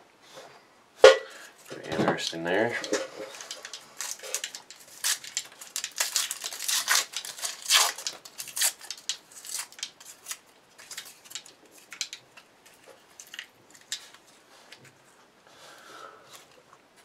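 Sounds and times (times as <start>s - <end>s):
paper tearing: 3.3s - 12.0s.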